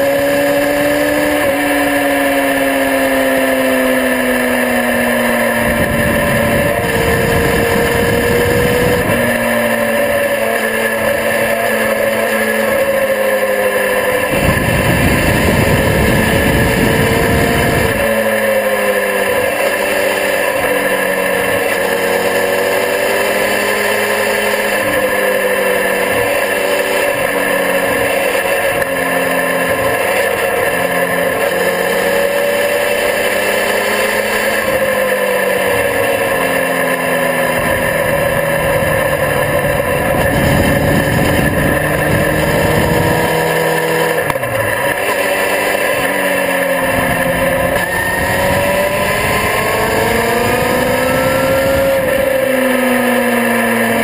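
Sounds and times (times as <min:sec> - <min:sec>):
motorcycle engine at speed: 0:00.0 - 0:54.0
wind rushing over camera: 0:14.2 - 0:18.2.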